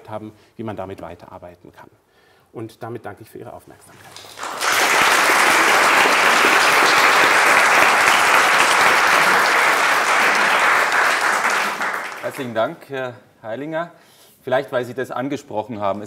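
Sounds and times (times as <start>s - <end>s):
audience applauding: 4.0s - 12.7s.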